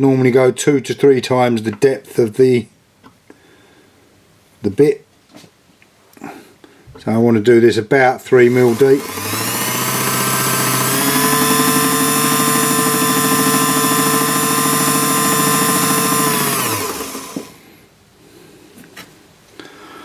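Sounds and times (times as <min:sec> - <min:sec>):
lathe whining: 0:08.4 - 0:17.7.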